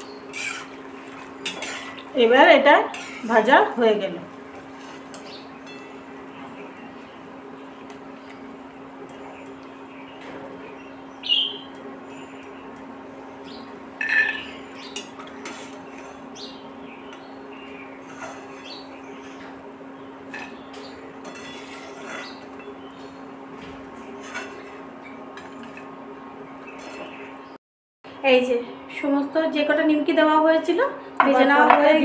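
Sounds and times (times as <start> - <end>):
frying oil hissing: 0.0 - 9.7
metal spoon clinking on pan and plate: 14.0 - 15.6.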